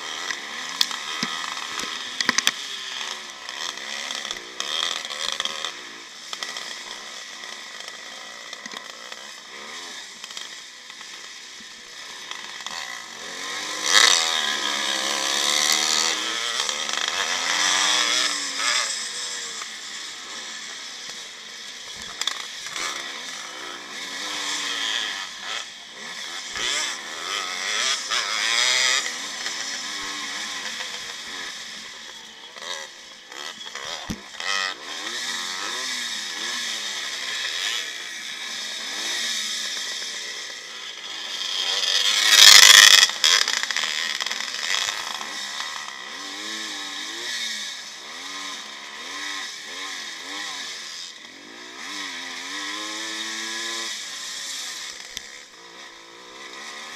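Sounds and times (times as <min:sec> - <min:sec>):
motocross engine revving: 0:00.0 - 0:56.9
camera rattle: 0:42.3 - 0:43.7.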